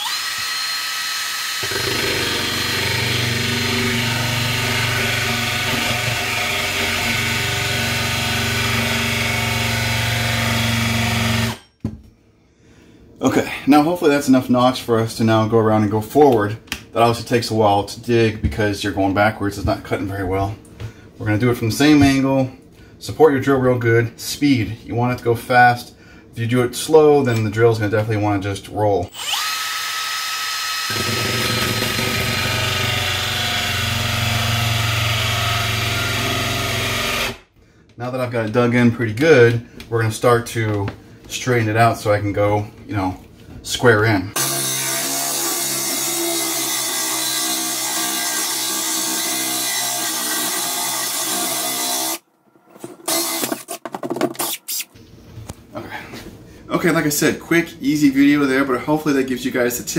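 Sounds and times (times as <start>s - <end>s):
drill with hole saw rubbing wood: 0.0s - 11.7s, 29.1s - 37.5s, 44.4s - 52.2s, 53.0s - 53.8s.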